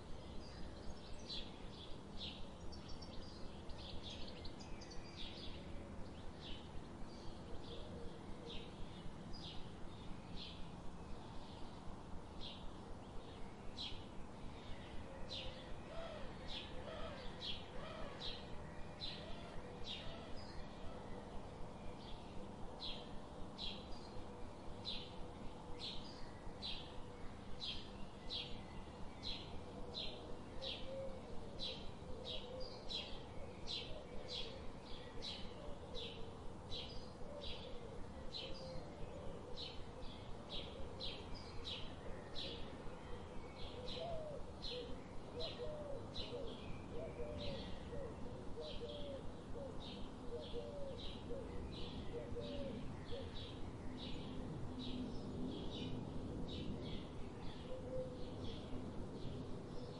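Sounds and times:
steady background hiss: 0.0 - 59.9.

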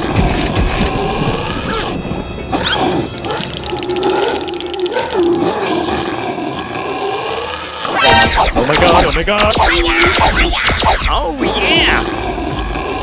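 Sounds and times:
background music: 0.0 - 13.0
dinosaur growl: 2.7 - 8.0.

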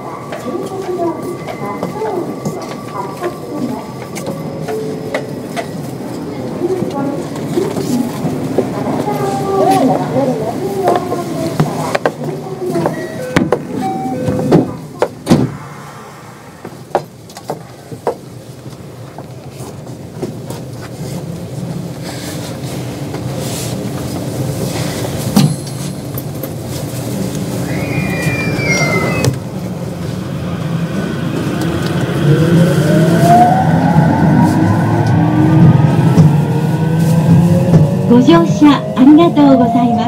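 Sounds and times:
train rolling rumble: 0.0 - 40.0
train knocks: 10.8 - 15.7, 16.6 - 18.3.

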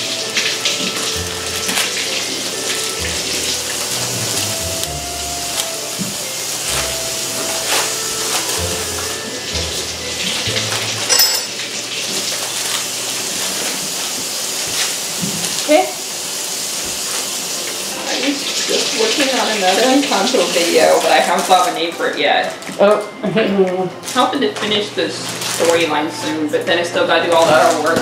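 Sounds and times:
tap running into sink: 0.0 - 7.7, 13.7 - 15.7, 16.7 - 17.8.

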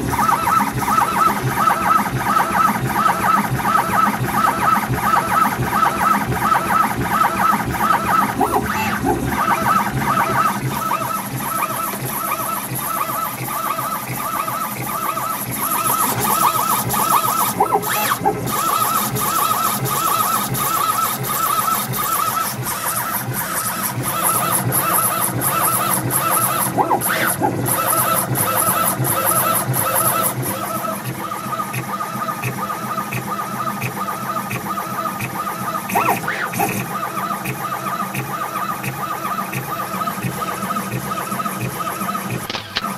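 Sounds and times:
stepper motors whining: 0.0 - 42.9
scattered clicks: 41.6 - 42.9.

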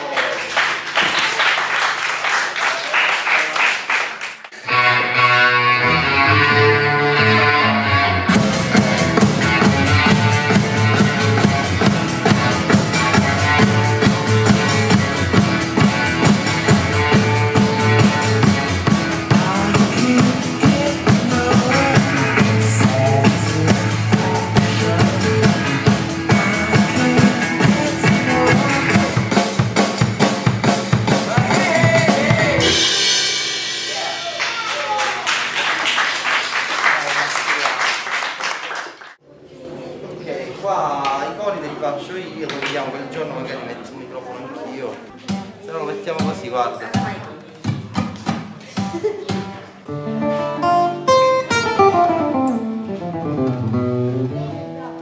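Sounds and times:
pitched instruments music: 4.6 - 35.0, 49.9 - 55.0
drum kit steady beat: 8.3 - 35.0.

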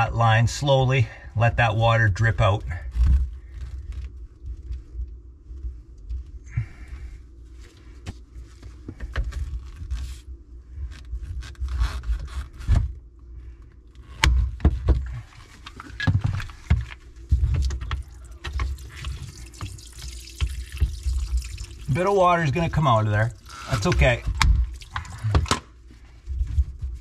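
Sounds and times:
water trickling from pipe: 17.6 - 25.5.

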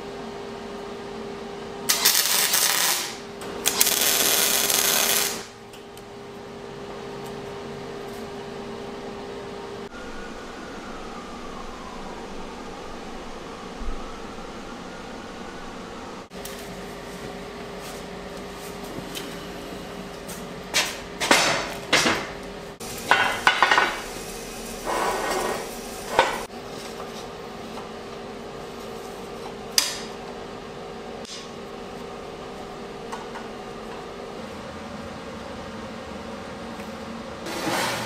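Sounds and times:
steady hum: 0.0 - 37.5.

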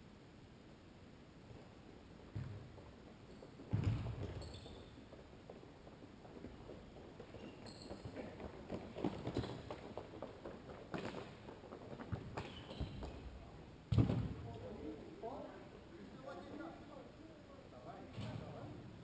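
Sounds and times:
quick footsteps on hard court: 2.2 - 13.3
ball kick: 3.7 - 4.7, 13.9 - 14.4
shoe squeaks: 4.2 - 5.1, 7.2 - 8.4, 9.1 - 9.7, 12.4 - 13.3.

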